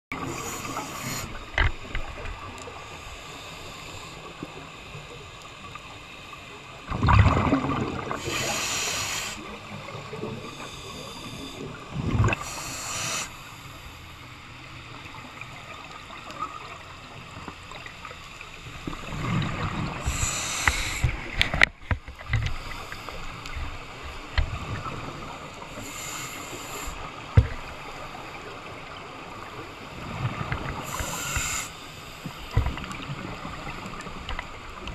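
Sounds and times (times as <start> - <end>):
diver inhaling through regulator: 0.1 - 1.5, 8.1 - 9.6, 10.4 - 13.9, 19.9 - 21.4, 25.7 - 27.2, 30.8 - 31.9
exhaled bubbles rushing: 6.9 - 8.2.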